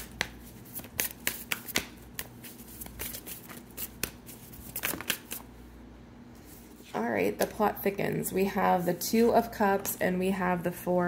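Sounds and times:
cards being shuffled: 0.0 - 5.5.

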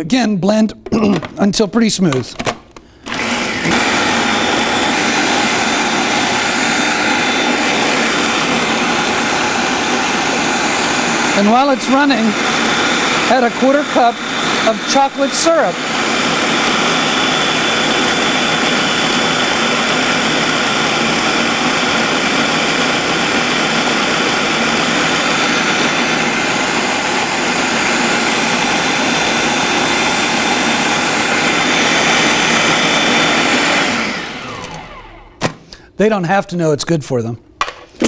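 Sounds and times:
food processor motor running: 3.0 - 35.4.

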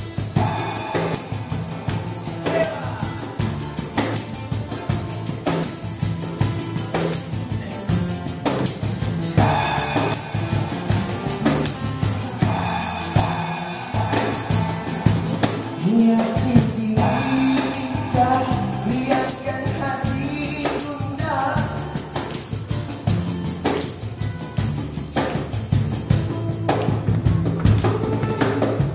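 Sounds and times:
tambourine shaking: 0.0 - 27.0
acoustic guitars strumming: 0.0 - 28.9
person singing: 0.4 - 3.4, 12.6 - 22.2.

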